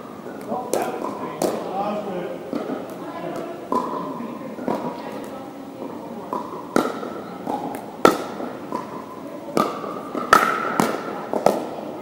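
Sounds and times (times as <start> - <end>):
paddles hitting plastic ball: 0.4 - 1.6, 2.5 - 4.0, 6.3 - 11.8
faint ball taps: 2.5 - 4.0, 4.6 - 11.7.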